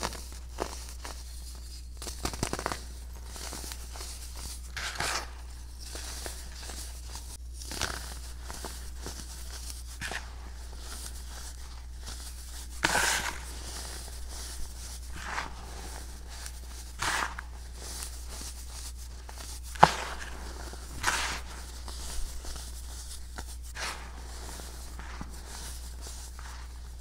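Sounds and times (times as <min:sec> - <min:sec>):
powder crumbling between fingers: 0:00.0 - 0:10.0.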